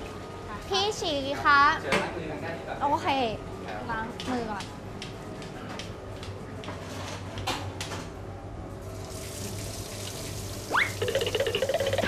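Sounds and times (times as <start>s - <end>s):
oil bubbling and sizzling: 8.8s - 12.0s.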